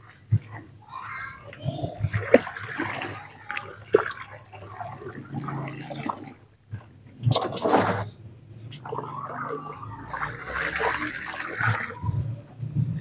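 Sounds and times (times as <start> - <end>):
laundry sloshing in water: 0.0 - 8.1, 8.7 - 12.4
water splashes and drips: 1.4 - 8.0, 8.7 - 12.3.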